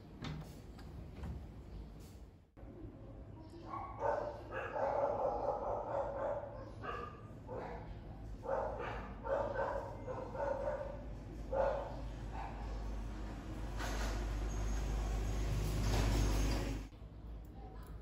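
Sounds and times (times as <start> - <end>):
dog barking: 3.7 - 12.8.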